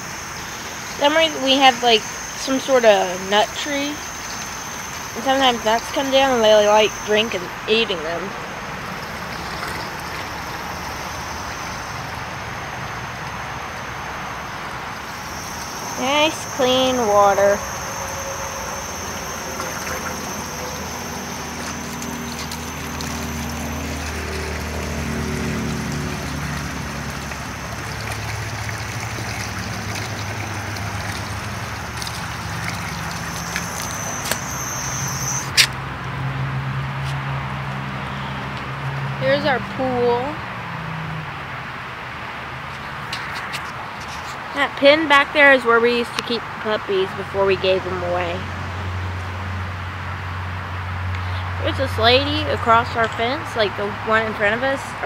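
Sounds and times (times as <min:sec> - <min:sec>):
hose water running into bowl: 0:00.0 - 0:12.1, 0:15.0 - 0:35.6
low steady hum: 0:00.0 - 0:35.6.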